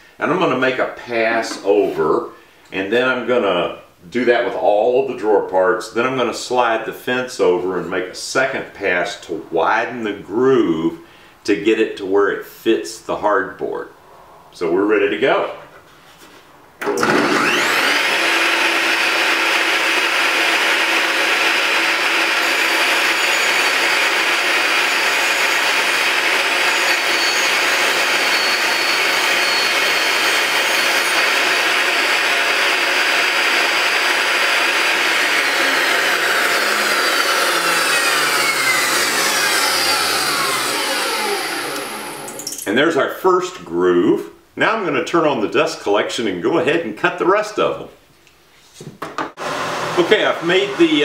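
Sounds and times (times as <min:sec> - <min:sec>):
table saw cutting wood: 0:16.8 - 0:42.5, 0:49.4 - 0:51.0
saw blade whine coasting down: 0:17.0 - 0:42.5.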